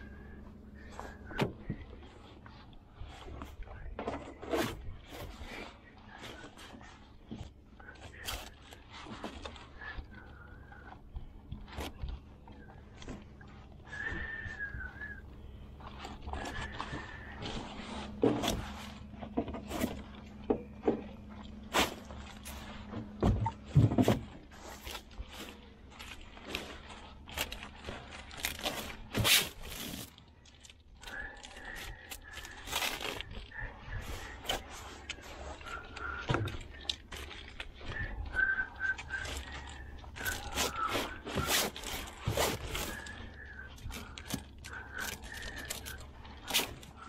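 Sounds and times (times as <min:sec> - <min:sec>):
steady low hum: 0:00.0 - 0:47.0
net scraping and clicking: 0:24.3 - 0:47.0.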